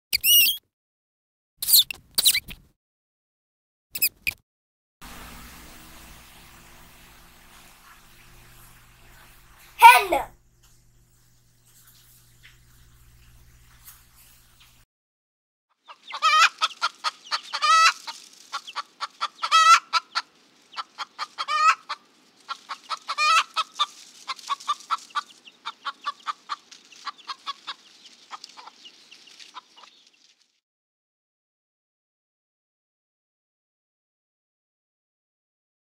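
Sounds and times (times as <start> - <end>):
hens clucking: 15.8 - 30.1
hen squawking calls: 15.9 - 29.9.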